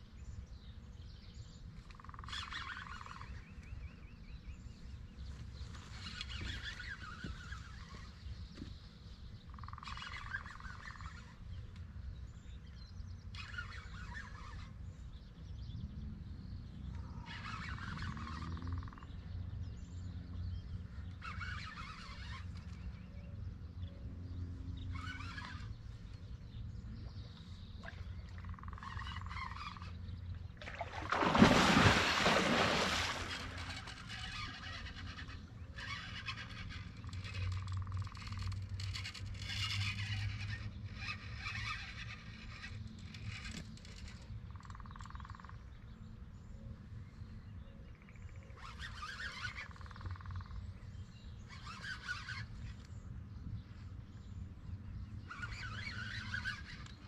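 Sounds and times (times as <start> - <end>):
birds chirping and calling: 47.1 - 57.0.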